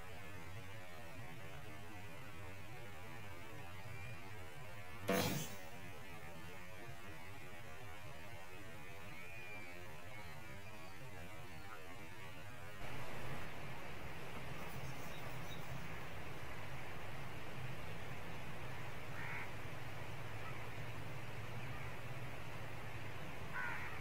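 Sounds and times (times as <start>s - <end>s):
background hiss: 0.0s - 24.0s.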